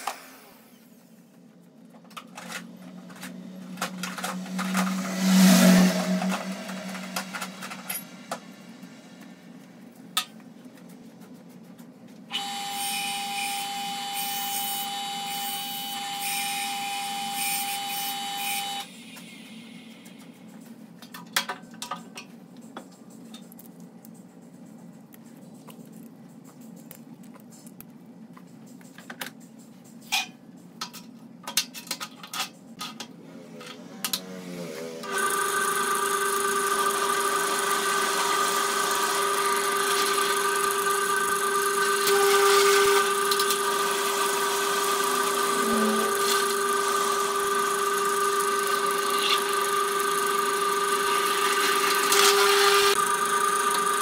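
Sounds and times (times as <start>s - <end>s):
low steady hum: 1.2s - 12.2s
mechanical whine: 1.9s - 10.2s, 12.3s - 20.8s, 33.6s - 54.0s.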